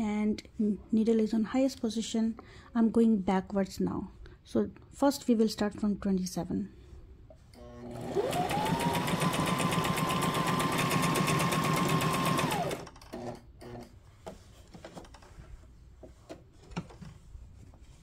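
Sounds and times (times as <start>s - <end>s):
sewing machine running: 7.8s - 13.4s.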